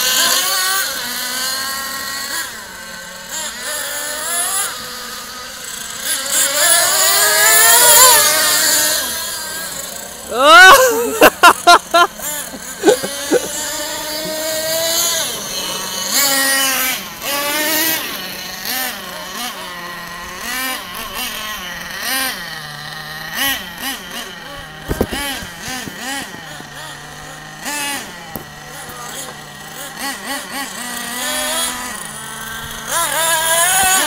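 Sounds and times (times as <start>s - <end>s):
small nitro engines revving: 0.0s - 34.0s.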